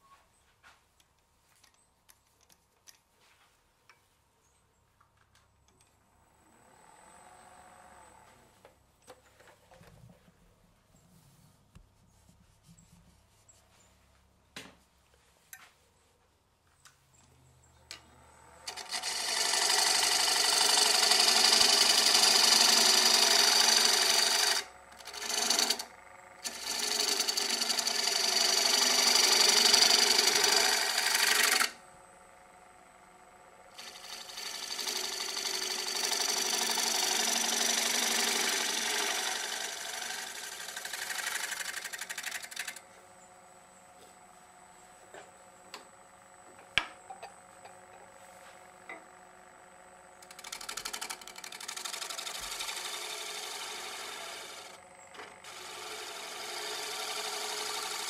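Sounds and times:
lathe motor hum: 17.8s - 43.2s, 44.0s - 58.0s
gouge scraping wood on lathe: 18.7s - 31.8s, 33.8s - 42.8s, 50.2s - 58.0s.

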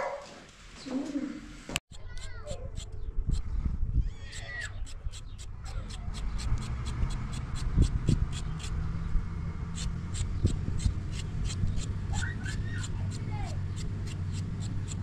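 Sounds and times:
knife scraping carrot: 1.9s - 3.5s, 4.3s - 8.8s, 9.8s - 15.0s.

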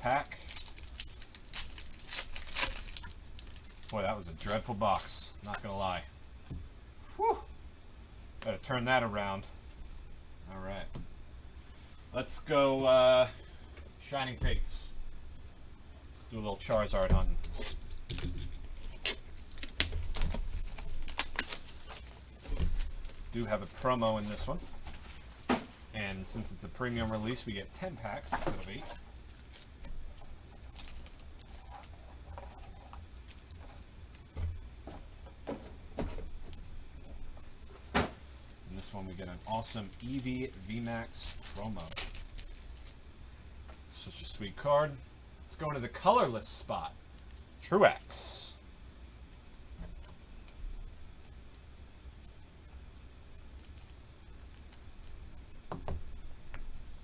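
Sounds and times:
low steady hum: 0.0s - 57.0s
packaging crinkling and clicking: 0.2s - 5.1s, 18.8s - 23.4s, 38.7s - 43.1s.

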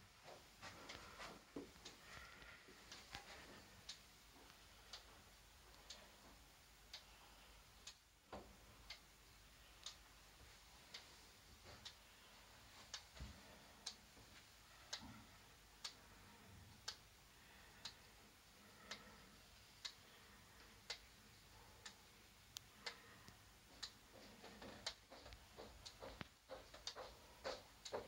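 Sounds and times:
wall clock ticking: 0.0s - 28.0s
irregular clicks: 18.6s - 19.2s.

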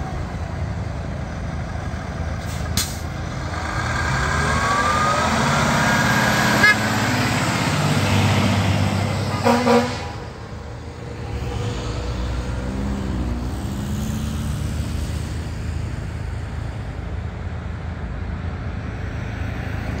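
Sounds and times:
diesel truck engine rumbling: 0.0s - 20.0s
short horn toots: 6.6s - 6.9s, 9.3s - 10.2s.

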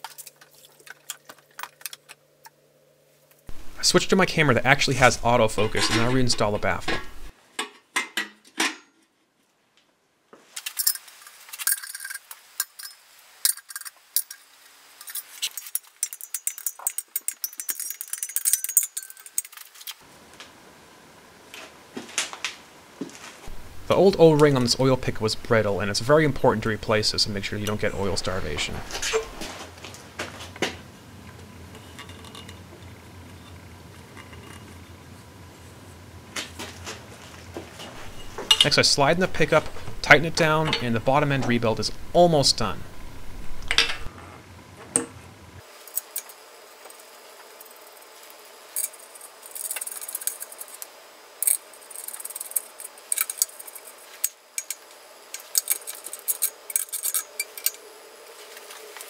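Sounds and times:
low steady hum: 0.0s - 7.4s, 11.7s - 59.0s
metal clinks and rattles: 10.6s - 20.0s, 48.8s - 57.8s
small metal clicks: 10.6s - 20.0s, 48.8s - 57.8s.

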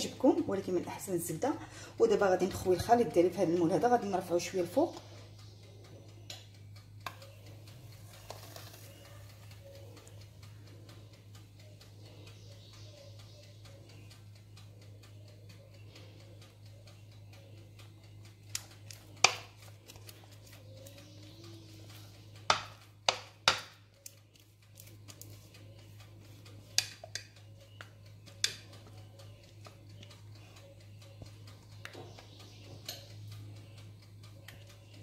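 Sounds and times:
steady low hum: 0.0s - 35.0s
utensil knocking on metal cake pan: 22.5s - 23.7s.

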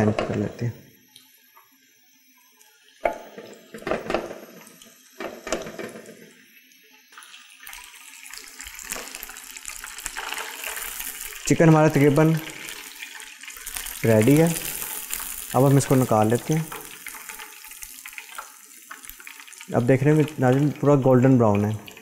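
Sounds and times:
chicken sizzling in hot oil: 1.2s - 22.0s.

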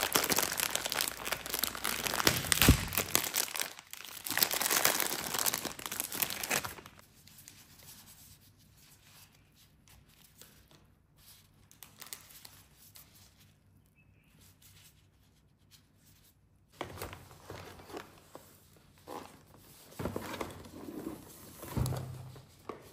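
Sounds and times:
plastic wrapper crinkling: 0.0s - 7.0s
rustling handling noise: 14.6s - 22.9s.

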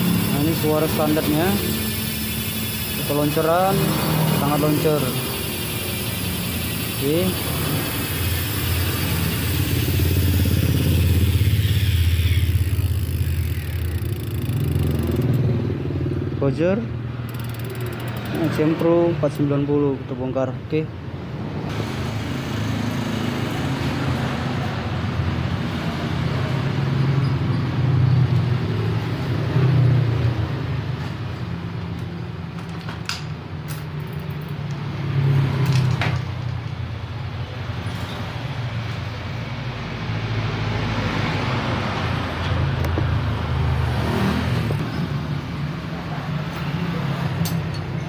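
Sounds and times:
low engine rumble: 0.0s - 18.6s
sharp clicks: 12.0s - 15.5s, 17.3s - 18.4s.

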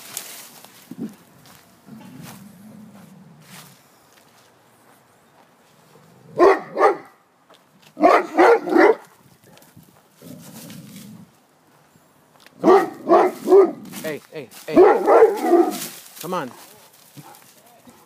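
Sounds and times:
large dog barking: 6.3s - 7.2s, 8.0s - 9.1s, 12.6s - 13.9s, 14.8s - 15.9s.

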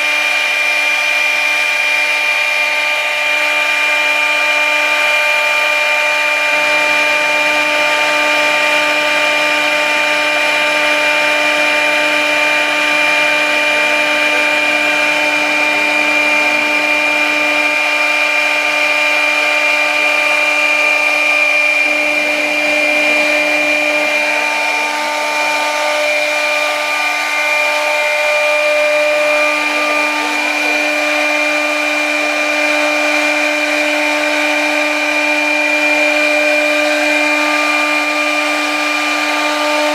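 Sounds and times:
router cutting board: 0.0s - 39.9s
router spindle high whine: 0.0s - 39.9s.

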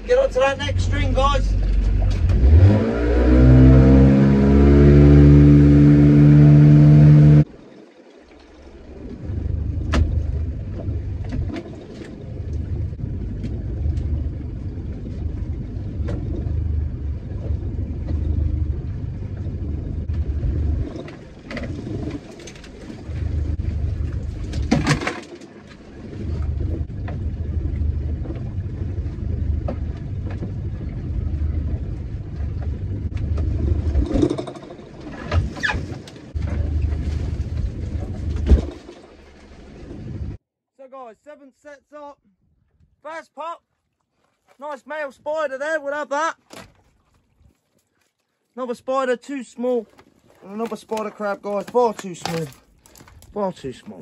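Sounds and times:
boat engine rumbling: 0.0s - 40.4s, 44.0s - 54.0s.

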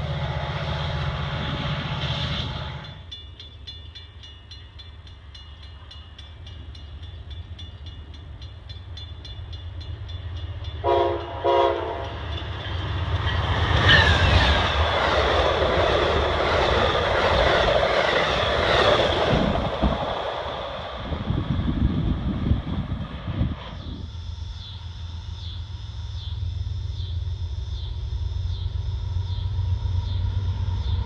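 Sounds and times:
rail noise: 0.0s - 31.0s
locomotive horn blasts: 10.8s - 12.2s.

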